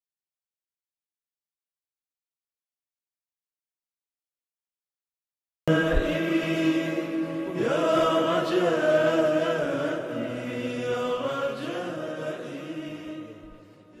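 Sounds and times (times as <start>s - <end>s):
wordless vocal chanting: 5.7s - 14.0s.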